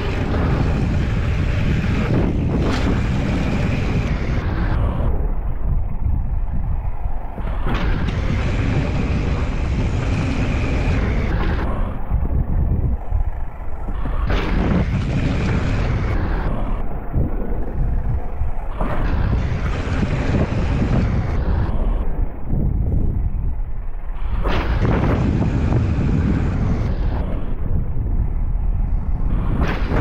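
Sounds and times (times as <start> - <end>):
bike tyres rolling over dirt: 0.0 - 30.0
wind buffeting microphone: 0.0 - 30.0.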